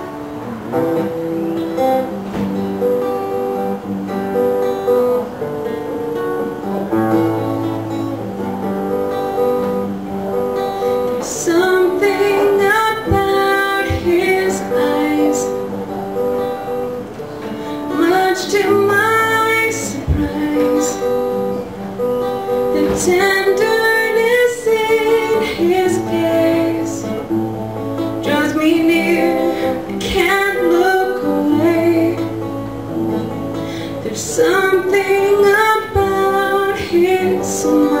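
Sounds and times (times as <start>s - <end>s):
acoustic guitar strumming: 0.0s - 38.0s
woman singing: 11.0s - 15.9s, 17.4s - 21.6s, 22.5s - 27.4s, 28.0s - 38.0s.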